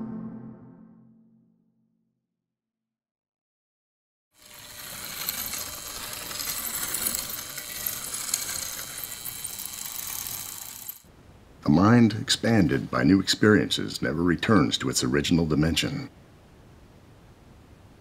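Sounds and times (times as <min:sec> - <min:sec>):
gears and ratchets clattering: 0:04.4 - 0:11.1.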